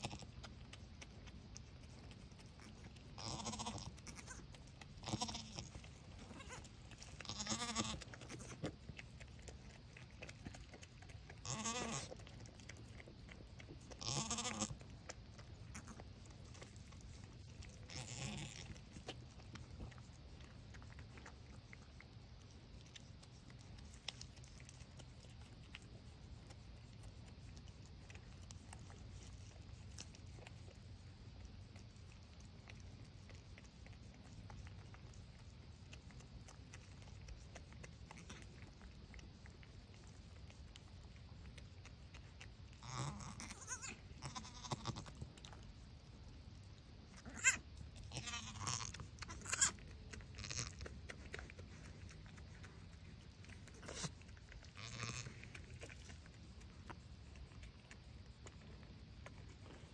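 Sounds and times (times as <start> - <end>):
faint low hum: 0.0 - 59.9
goat bleating: 3.2 - 4.4, 5.0 - 8.6, 11.4 - 12.1, 14.0 - 14.8, 17.8 - 19.0, 42.8 - 45.2, 47.2 - 50.8, 54.8 - 55.4.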